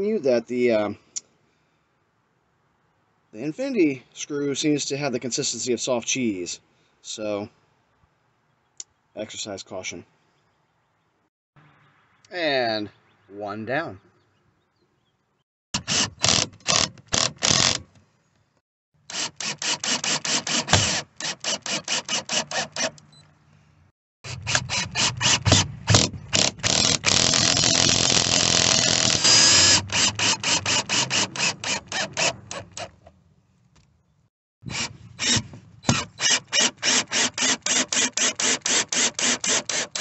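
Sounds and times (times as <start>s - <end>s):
cordless drill driving screws: 15.8s - 17.8s, 19.1s - 23.1s, 24.3s - 33.0s, 34.7s - 40.0s
drill clutch clicking: 24.3s - 33.0s, 34.7s - 40.0s.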